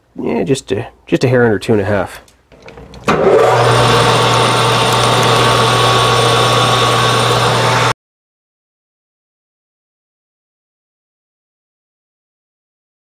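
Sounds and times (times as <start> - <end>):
lathe motor hum: 2.6 - 7.9.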